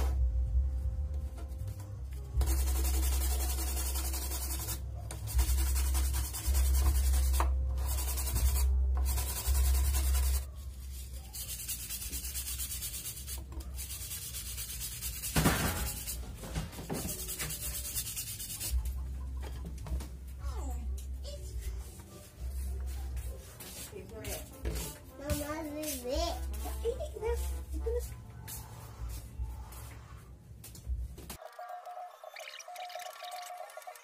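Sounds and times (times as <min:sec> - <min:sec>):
wire brush scrubbing a shell: 0:02.4 - 0:16.2.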